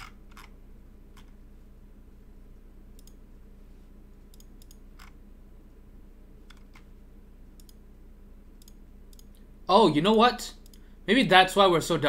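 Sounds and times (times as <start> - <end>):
computer mouse clicking: 0.0 - 0.5, 1.1 - 1.4, 3.0 - 3.2, 4.3 - 5.2, 6.5 - 6.9, 7.6 - 7.8, 8.6 - 9.4
low hum: 0.0 - 12.0.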